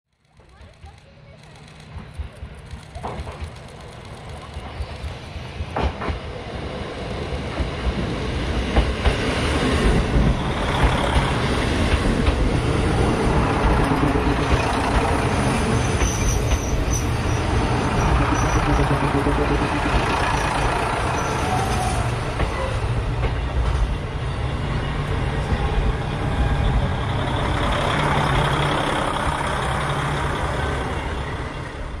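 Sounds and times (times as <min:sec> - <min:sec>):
diesel railcar rumbling: 0:00.3 - 0:32.0
high squeal: 0:13.6 - 0:22.8.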